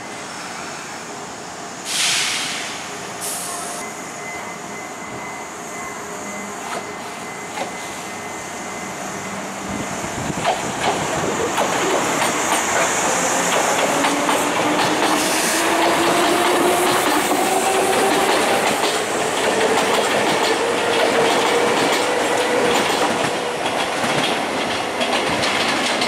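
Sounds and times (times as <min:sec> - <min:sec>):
air hiss: 0:01.7 - 0:03.8
wheels clicking over rail joints: 0:15.8 - 0:26.0.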